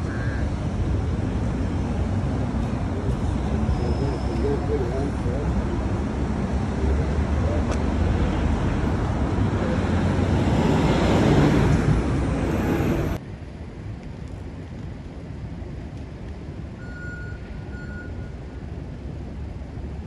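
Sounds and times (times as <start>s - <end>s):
traffic hum: 0.0s - 20.0s
vehicle passing close: 0.7s - 13.2s
faint short beeps: 16.8s - 18.4s.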